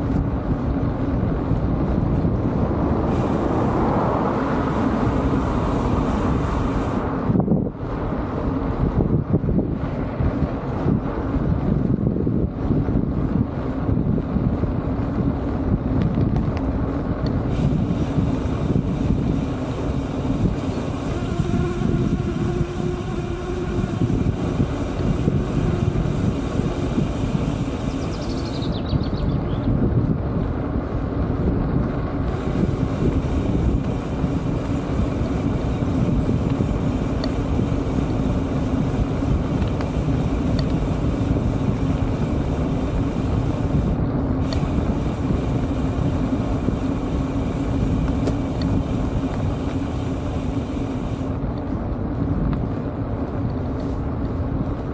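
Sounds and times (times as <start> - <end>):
tyres rolling on asphalt: 0.0 - 28.5, 29.8 - 54.9
wind noise on microphone: 0.0 - 54.9.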